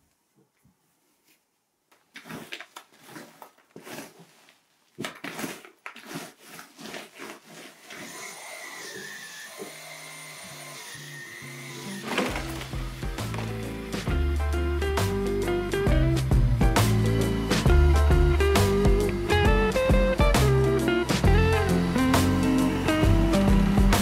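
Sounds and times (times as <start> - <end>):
lint roller rubbing upholstery: 2.2 - 4.6, 5.2 - 8.2
stick vacuum whining: 5.2 - 24.0.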